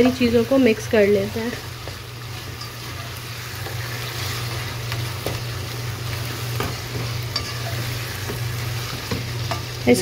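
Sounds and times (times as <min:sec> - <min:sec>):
mince sizzling in a pot: 0:00.0 - 0:10.0.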